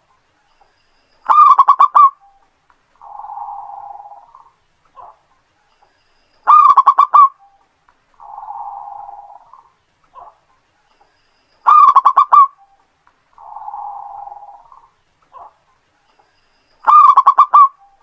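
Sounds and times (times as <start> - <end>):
dove cooing and purring: 3.0 - 5.2, 8.2 - 10.3, 13.4 - 15.5.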